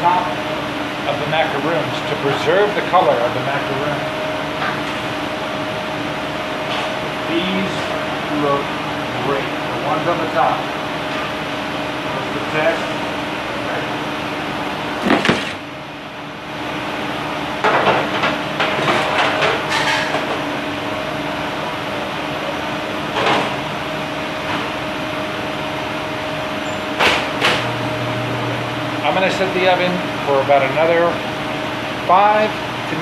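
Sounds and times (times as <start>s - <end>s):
ventilation hum: 0.0s - 33.0s
metal pans and racks clattering: 17.6s - 20.3s.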